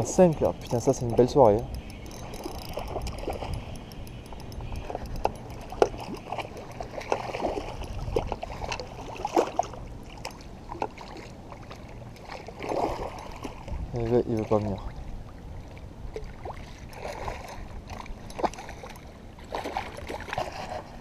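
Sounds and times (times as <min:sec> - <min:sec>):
spinning reel cranking: 0:00.0 - 0:07.0
low rumble of handling noise: 0:00.0 - 0:21.0.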